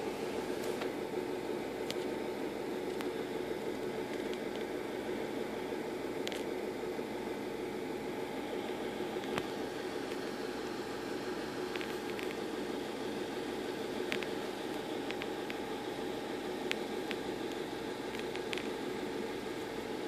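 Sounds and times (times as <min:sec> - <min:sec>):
motor hum with hiss: 0:00.0 - 0:20.0.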